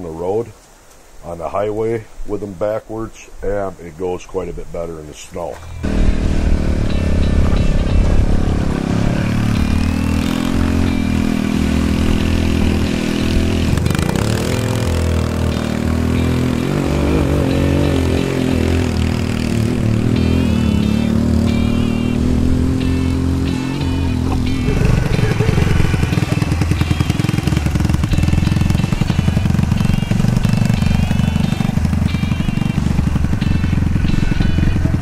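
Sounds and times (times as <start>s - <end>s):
go-kart engine running: 5.8s - 35.0s.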